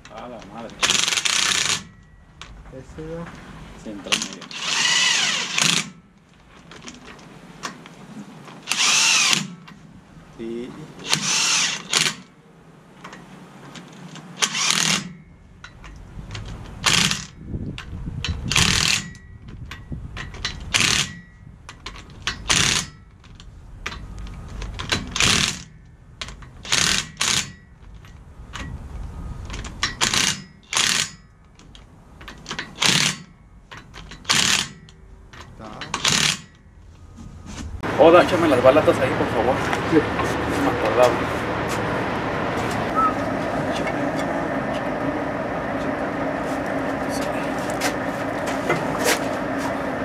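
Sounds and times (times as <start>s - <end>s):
impact wrench rattling: 0.0s - 2.6s, 14.4s - 28.8s, 29.5s - 36.7s.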